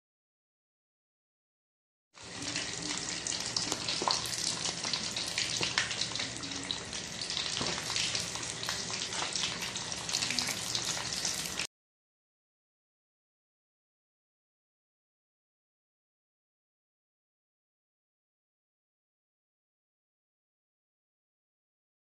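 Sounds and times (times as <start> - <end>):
fish deep-frying in oil: 2.2 - 11.7.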